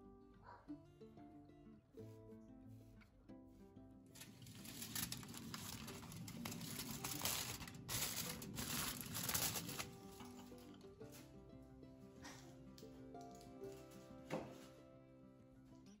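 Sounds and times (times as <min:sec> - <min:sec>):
aluminium foil crinkling: 0:04.2 - 0:10.7.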